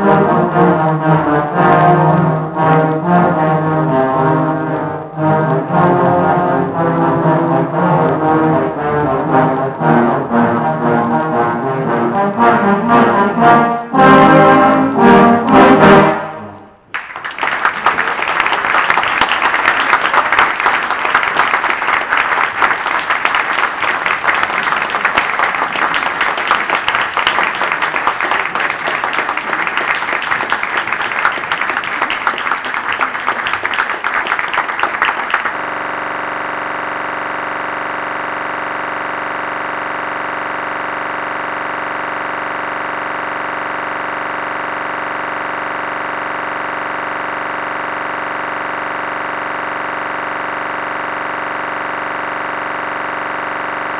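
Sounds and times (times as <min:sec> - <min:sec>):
brass band playing: 0:00.0 - 0:16.9
applause: 0:16.9 - 0:36.1
steady drone of tones: 0:35.3 - 0:53.9.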